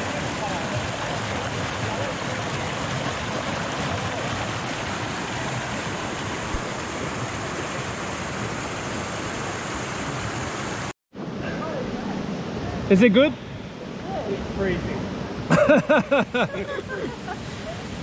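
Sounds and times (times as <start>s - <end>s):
creek cascading into a pool: 0.0s - 10.9s.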